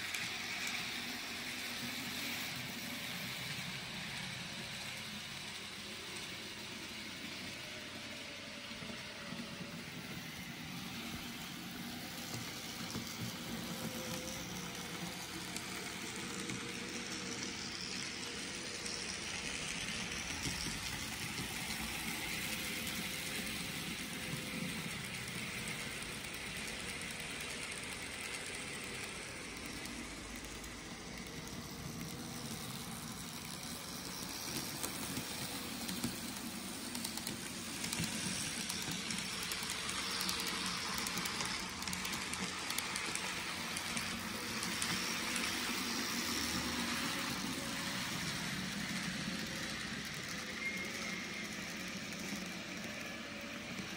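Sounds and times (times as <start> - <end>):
model train motors whirring: 0.0 - 53.9
wheels rolling on rails: 0.0 - 53.9.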